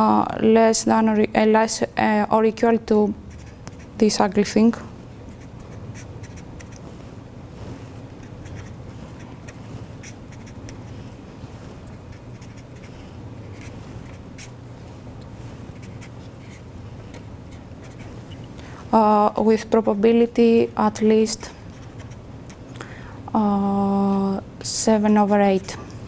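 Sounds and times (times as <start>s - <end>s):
steady low hum: 0.0s - 26.0s
marker pen writing on paper: 3.3s - 4.0s, 5.3s - 6.8s, 8.0s - 11.1s, 11.8s - 14.6s, 15.7s - 18.1s, 21.7s - 22.6s.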